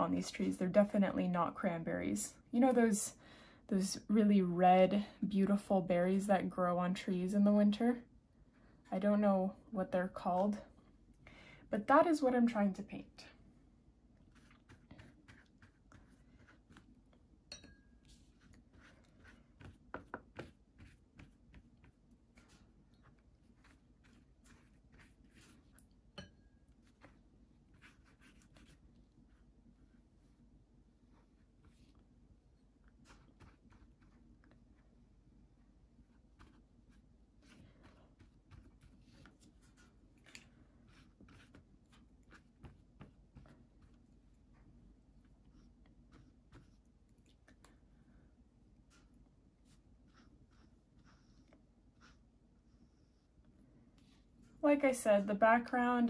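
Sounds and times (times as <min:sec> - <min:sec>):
brush stroking paint on paper: 0:14.2 - 0:17.1, 0:18.0 - 0:25.8, 0:26.7 - 0:30.4, 0:32.9 - 0:34.8, 0:36.0 - 0:47.0, 0:48.8 - 0:52.6.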